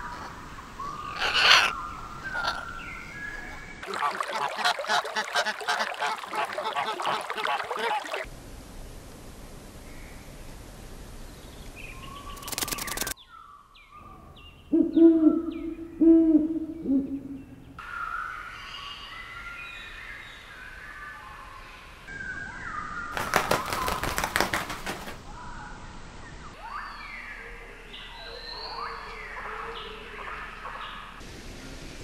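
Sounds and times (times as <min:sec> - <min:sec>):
small birds chirping: 0:11.4 - 0:16.0
low hooting calls: 0:14.0 - 0:17.8.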